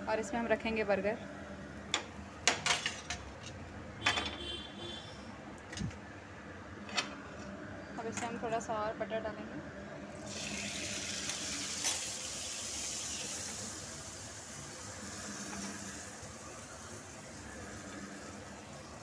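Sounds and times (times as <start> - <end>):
butter sizzling on a griddle: 10.2 - 19.0.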